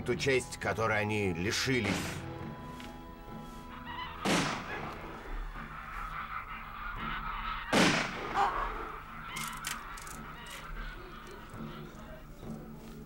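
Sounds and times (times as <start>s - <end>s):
birds calling: 0.0s - 13.0s
musket shots: 4.2s - 5.1s, 7.7s - 8.5s.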